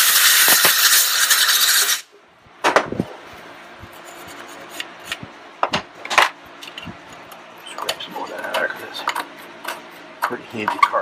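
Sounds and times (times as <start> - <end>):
compressed air blow gun hissing: 0.0 - 2.1.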